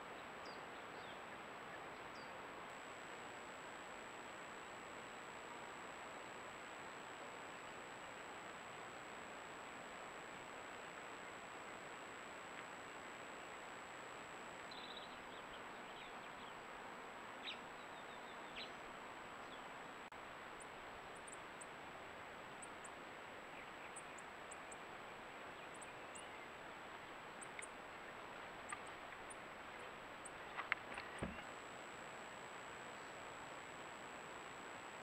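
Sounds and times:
faint bird chirps: 0:00.0 - 0:02.4, 0:14.6 - 0:16.7, 0:17.4 - 0:19.8, 0:22.5 - 0:27.8, 0:28.6 - 0:31.6
constant high whine: 0:00.0 - 0:35.0
steady hiss: 0:00.0 - 0:35.0
small ticks: 0:26.9 - 0:31.6.

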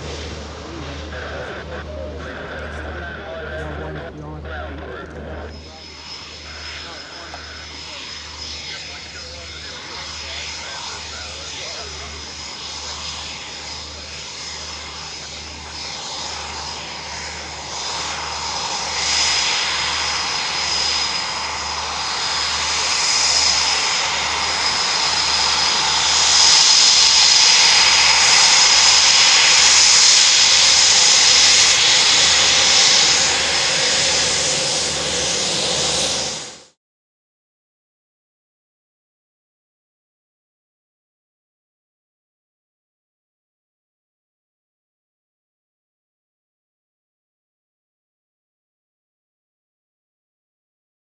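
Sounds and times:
jet engine rumble and whine: 0:00.0 - 0:36.8.

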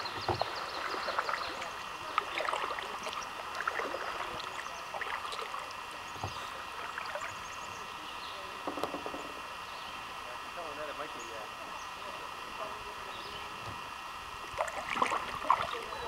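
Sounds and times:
paddle splashing: 0:00.0 - 0:09.4, 0:13.5 - 0:16.0
water trickling along hull: 0:00.0 - 0:09.5, 0:13.4 - 0:16.0
steady water hiss: 0:00.0 - 0:16.0.

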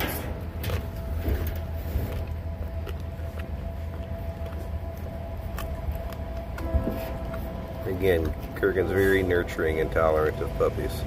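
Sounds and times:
low rumble and hum: 0:00.0 - 0:11.0
dog chewing raw meat: 0:00.4 - 0:11.0.

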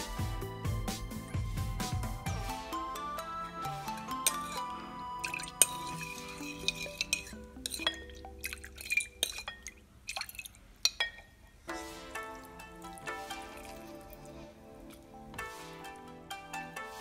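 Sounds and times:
background music: 0:00.0 - 0:09.5, 0:11.7 - 0:17.0
spoon clinking against ceramic bowl: 0:02.9 - 0:11.6
liquid splashing and dripping: 0:05.2 - 0:11.3.

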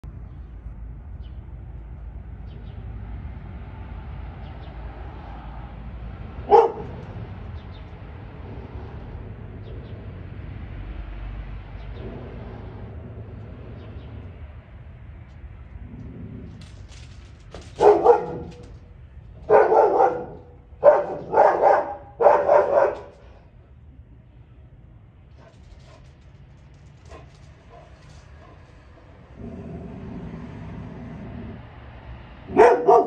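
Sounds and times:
low background rumble: 0:05.8 - 0:32.8
dog barking: 0:06.4 - 0:07.0, 0:17.7 - 0:18.7, 0:19.4 - 0:23.3, 0:32.5 - 0:33.0.

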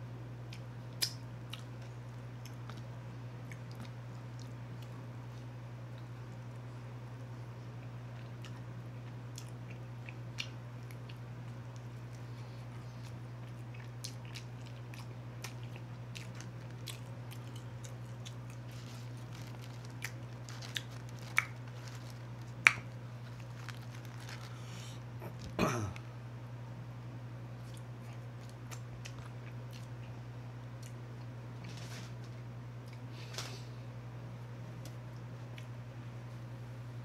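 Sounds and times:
steady low hum: 0:00.0 - 0:37.0
chewing and biting chicken wings: 0:00.5 - 0:05.0, 0:07.8 - 0:25.4, 0:27.6 - 0:31.8.

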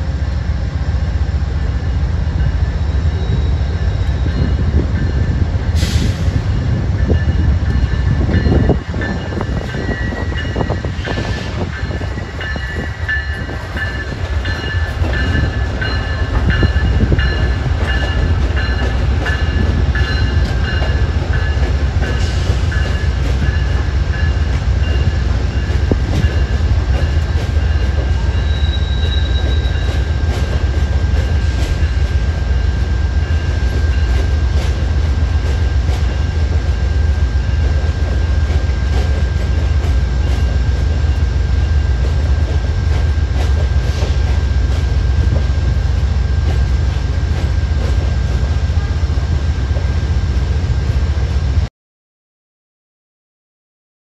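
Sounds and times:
train rumbling past: 0:00.0 - 0:51.7
train wheel clicks: 0:09.0 - 0:32.2, 0:41.9 - 0:45.5.

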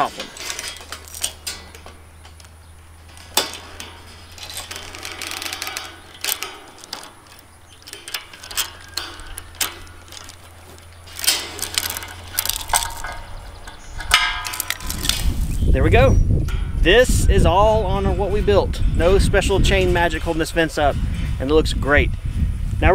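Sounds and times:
sharp metallic lever clicks: 0:00.0 - 0:15.6
steel chain clinking and rattling: 0:00.0 - 0:15.6.

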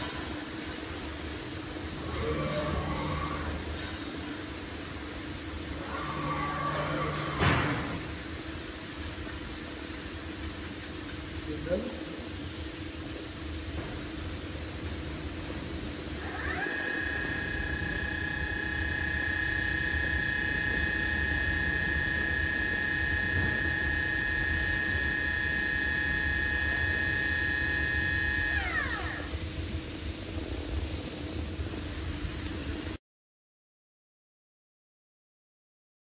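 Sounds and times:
low machine hum: 0:00.0 - 0:33.0
spindle high whine: 0:01.8 - 0:04.2, 0:05.6 - 0:08.2, 0:16.2 - 0:29.7.

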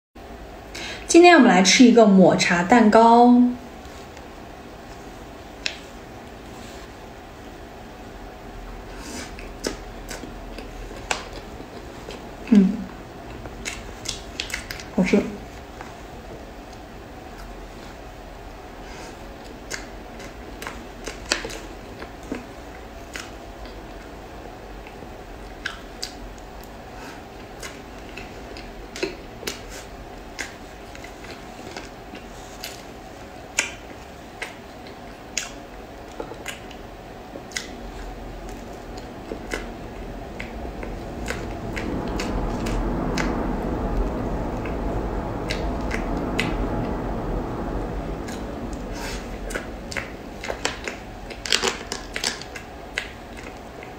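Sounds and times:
chewing with wet mouth clicks: 0:33.5 - 0:36.8, 0:37.4 - 0:39.7
dense rustling noise: 0:37.8 - 0:53.9.

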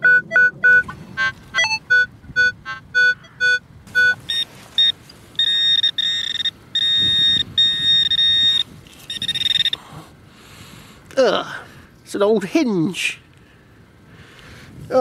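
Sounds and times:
metal detector beeps: 0:01.6 - 0:09.8
metal detector steady tones: 0:01.6 - 0:09.8.

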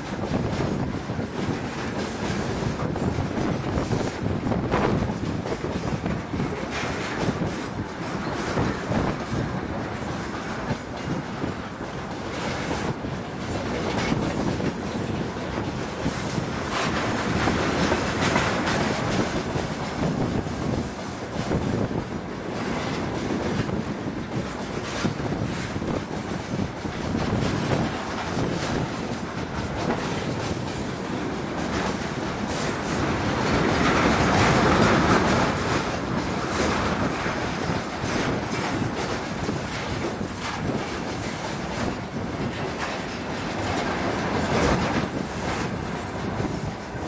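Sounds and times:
train rumble: 0:00.0 - 0:47.0
train wheels clattering over rail joints: 0:00.0 - 0:47.0.

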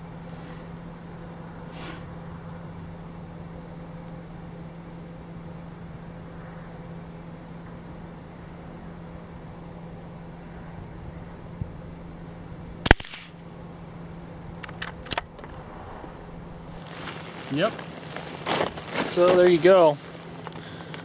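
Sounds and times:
rifle shot crack: 0:12.8 - 0:13.4.

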